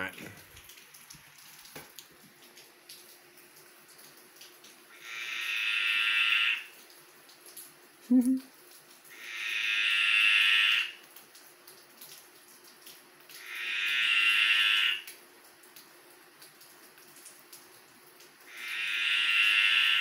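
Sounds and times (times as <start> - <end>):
tree frog buzzing croak: 4.9 - 6.7, 9.1 - 11.0, 13.4 - 15.1, 18.5 - 20.0.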